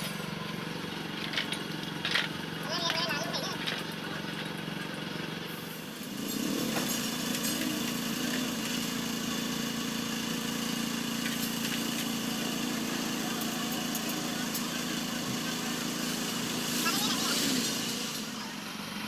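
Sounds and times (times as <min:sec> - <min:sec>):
engine hum: 0:00.0 - 0:19.0.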